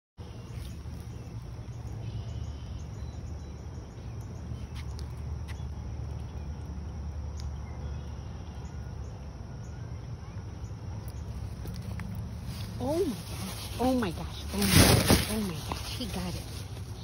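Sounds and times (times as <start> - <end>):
bird calls: 0.2 - 6.7
faint insect calls: 0.2 - 17.0.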